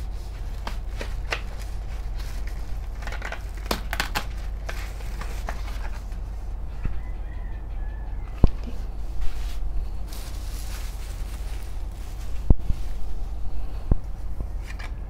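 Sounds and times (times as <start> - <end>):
bubble wrap crinkling: 0.0 - 6.3, 8.7 - 13.4
cardboard box rustling: 0.3 - 6.2, 10.1 - 12.5.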